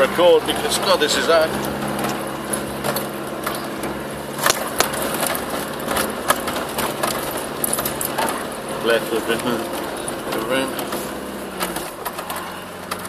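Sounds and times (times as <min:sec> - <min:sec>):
body and suspension rattling: 0:00.0 - 0:13.0
diesel engine running under load: 0:00.0 - 0:13.0.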